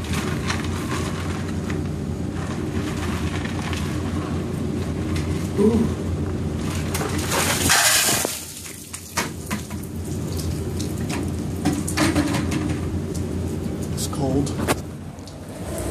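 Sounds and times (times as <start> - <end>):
water splashing onto ground: 6.8 - 12.3
water dripping: 8.3 - 12.0.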